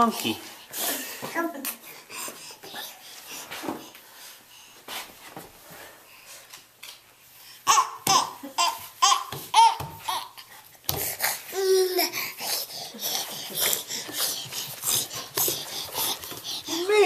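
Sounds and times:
baby babbling and laughing: 0:07.6 - 0:10.5, 0:11.2 - 0:12.2.

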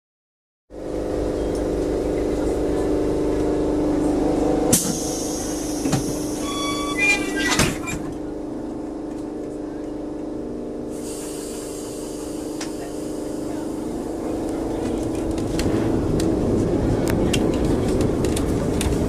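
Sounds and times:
tram hum: 0:00.7 - 0:19.0
short tones: 0:06.3 - 0:07.4.

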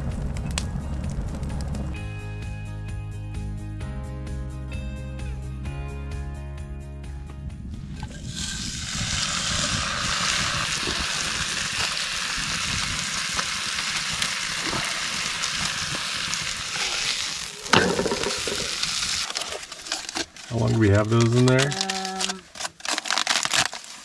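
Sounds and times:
steak sizzling in frying pan: 0:08.1 - 0:19.3.

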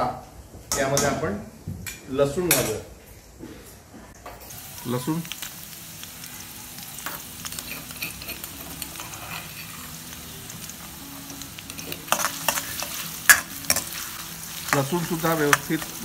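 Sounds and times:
garlic sizzling in oil: 0:04.3 - 0:16.0.

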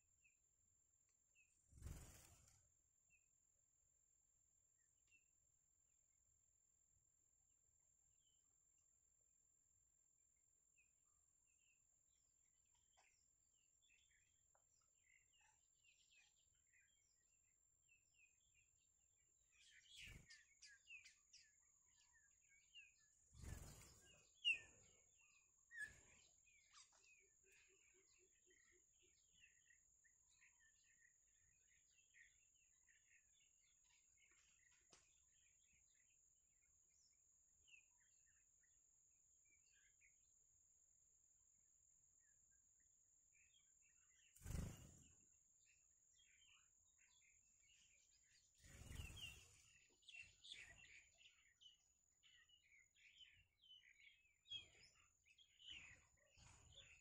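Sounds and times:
baby birds chirping: 0:23.4 - 0:27.8, 0:44.4 - 0:45.0, 0:48.6 - 0:51.7.

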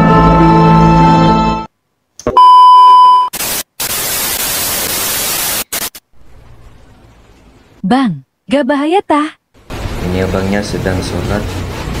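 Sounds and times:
loud steady beep: 0:02.4 - 0:03.4
loud static hiss: 0:03.3 - 0:07.2, 0:09.6 - 0:12.0
faint hum: 0:06.0 - 0:10.8.

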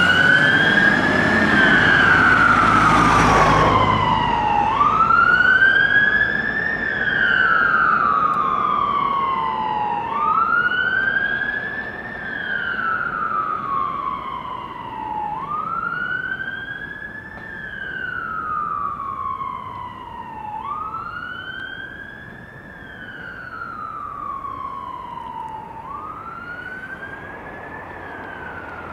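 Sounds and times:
fire engine siren wailing: 0:00.0 - 0:28.9.

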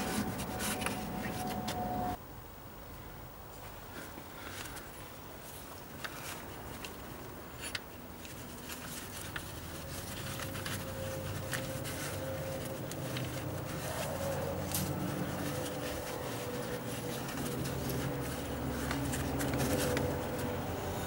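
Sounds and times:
belt rubbing on pulleys: 0:00.0 - 0:02.2, 0:07.6 - 0:21.0.

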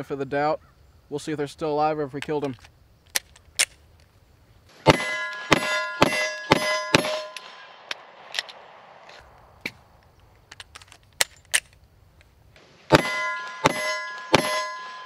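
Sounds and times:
steel target ringing: 0:04.8 - 0:08.7, 0:12.9 - 0:15.0
pistol shots: 0:04.8 - 0:09.0, 0:12.8 - 0:15.0.

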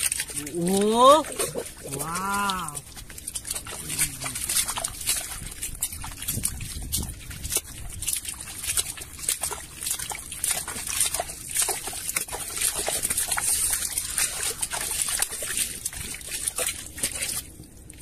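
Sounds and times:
hands squelching in wet mud: 0:00.0 - 0:18.0
mud splashes: 0:00.0 - 0:18.0.

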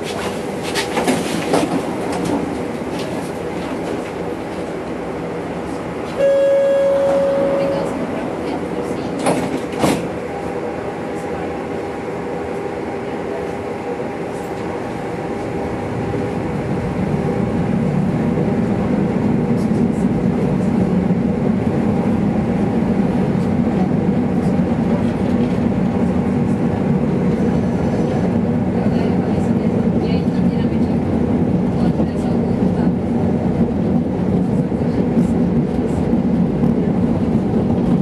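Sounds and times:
tram rolling on rails: 0:00.0 - 0:38.0.

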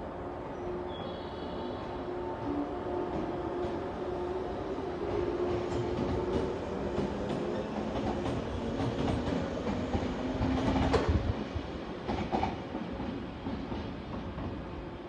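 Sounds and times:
low train hum: 0:00.0 - 0:15.0.

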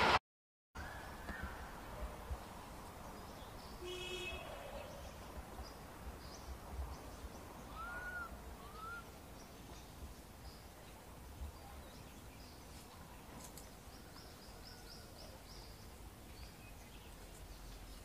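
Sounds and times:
thin arched whistling calls: 0:07.6 - 0:09.5.

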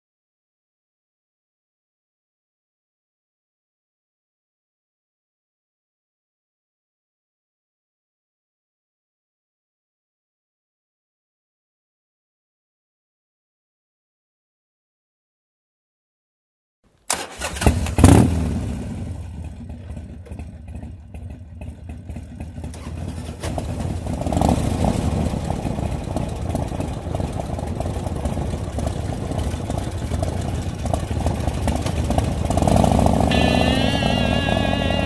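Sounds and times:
motorcycle engine starting and idling: 0:17.1 - 0:35.0.

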